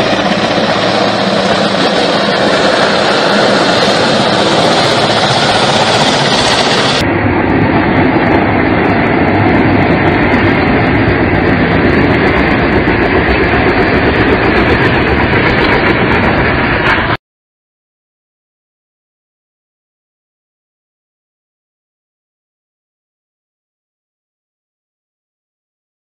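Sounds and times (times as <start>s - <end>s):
helicopter flying low: 0.0s - 17.2s.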